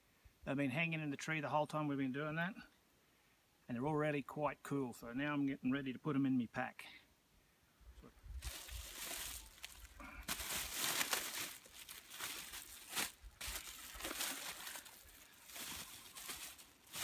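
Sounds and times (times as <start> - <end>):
plastic bag rustling and crinkling: 8.4 - 17.0.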